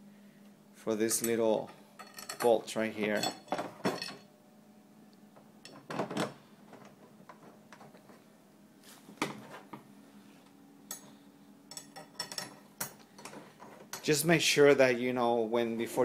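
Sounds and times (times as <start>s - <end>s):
metal bolts clinking: 1.2s - 4.3s, 11.7s - 14.1s.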